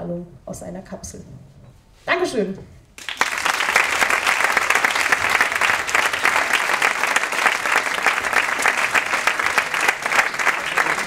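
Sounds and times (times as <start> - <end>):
audience applause: 3.0 - 11.0.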